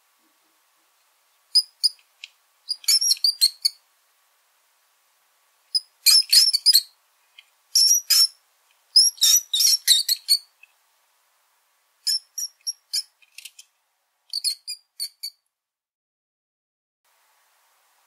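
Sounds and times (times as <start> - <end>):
rodent squeaking: 1.5 - 2.1, 2.7 - 3.8, 5.7 - 6.9, 7.8 - 10.7, 12.0 - 13.6, 14.3 - 15.4.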